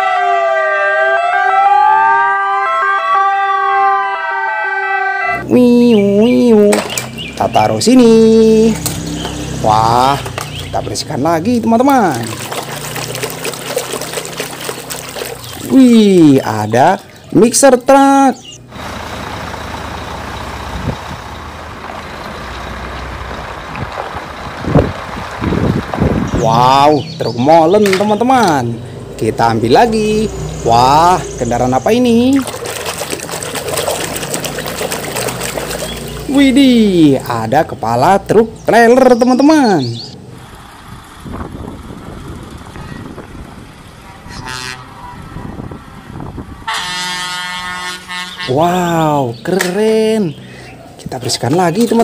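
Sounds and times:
diesel truck engine humming: 5.3s - 52.0s
truck horn toot: 44.2s - 45.3s, 46.6s - 49.0s
long horn blast: 44.2s - 45.5s, 46.6s - 48.8s.

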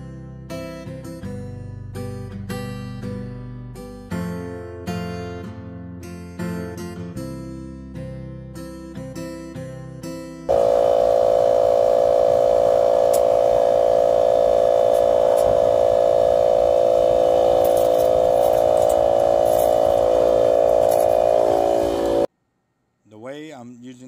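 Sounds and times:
air compressor motor hum: 10.5s - 22.3s.

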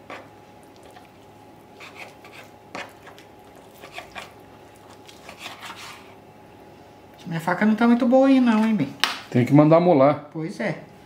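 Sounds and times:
knife scraping on cutting board: 0.0s - 0.3s, 1.8s - 6.2s
faint steady hum: 0.0s - 11.0s.

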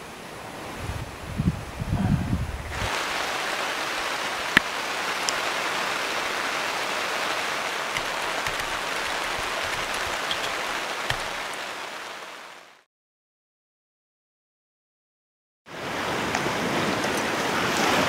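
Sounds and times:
heavy rain hiss: 2.7s - 12.8s.

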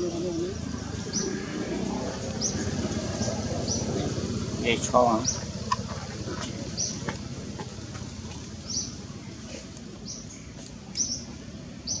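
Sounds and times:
steady low rumble: 0.0s - 11.9s.

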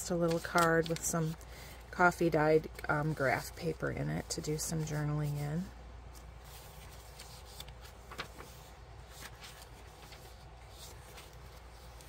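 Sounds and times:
paper pages turning: 0.1s - 1.4s, 6.1s - 12.0s.

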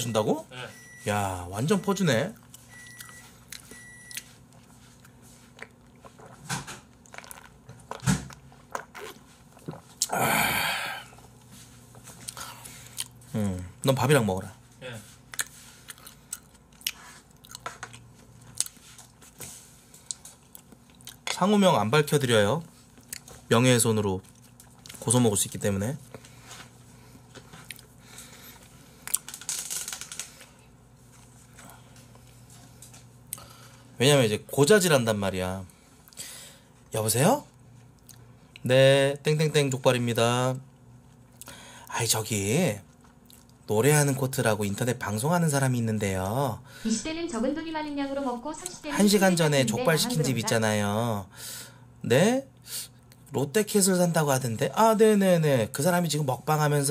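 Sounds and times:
person drinking and swallowing: 7.1s - 11.3s.

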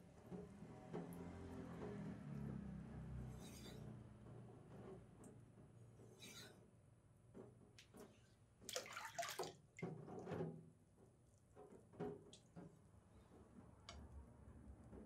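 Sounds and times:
knife blade scraping on whetstone: 3.3s - 3.9s, 6.1s - 6.6s
water splashing: 8.7s - 9.6s.

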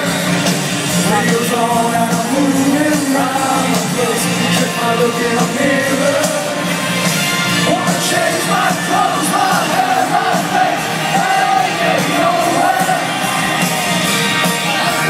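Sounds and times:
live rock band playing: 0.0s - 15.0s
man singing into a microphone: 1.0s - 6.6s, 7.6s - 10.5s.

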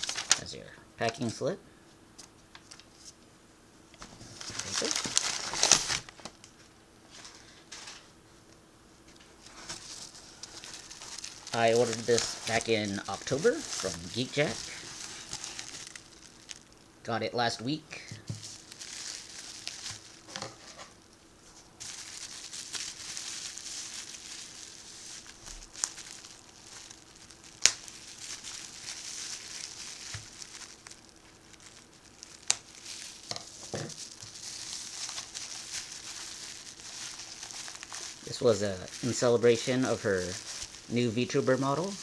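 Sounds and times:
bubble wrap crinkling: 0.0s - 0.5s, 4.0s - 6.5s, 9.2s - 17.0s, 17.7s - 42.0s.

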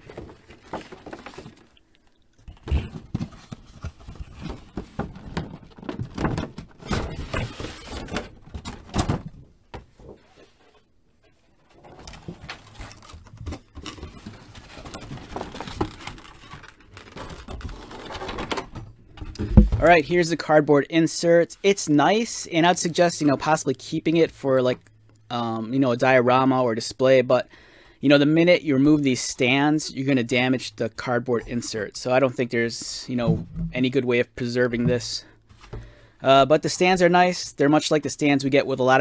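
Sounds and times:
packaging scraping and rustling: 0.0s - 1.8s, 2.6s - 9.0s, 11.7s - 18.8s.

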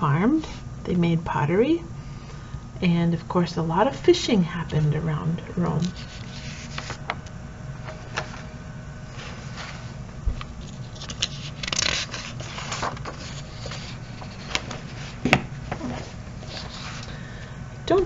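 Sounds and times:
paper rustling: 5.8s - 7.2s, 7.8s - 17.2s.

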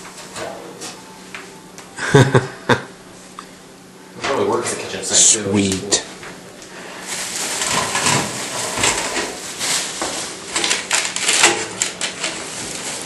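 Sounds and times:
plastic wrapping crinkling: 7.0s - 13.0s.

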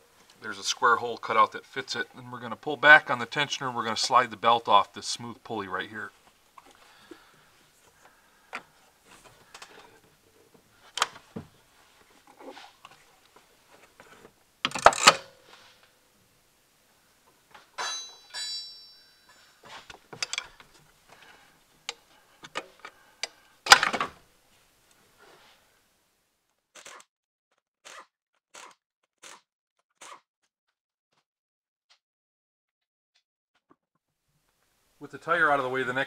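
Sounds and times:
metal clatter: 17.8s - 20.6s
metal tools clicking and knocking: 17.8s - 20.6s.

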